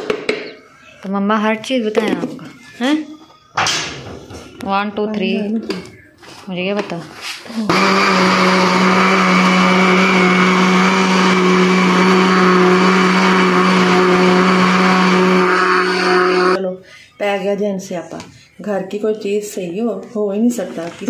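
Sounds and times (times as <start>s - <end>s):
blender running: 7.7s - 16.6s.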